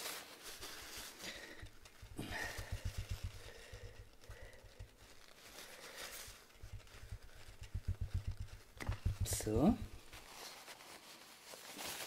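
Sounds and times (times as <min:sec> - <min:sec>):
paper rustle: 0:00.0 - 0:12.0
soft low thumps: 0:01.6 - 0:05.4, 0:06.6 - 0:10.3.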